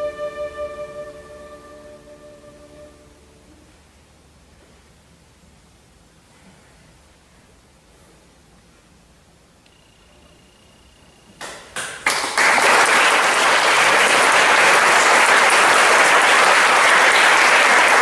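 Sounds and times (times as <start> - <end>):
audience applause: 12.0 - 18.0.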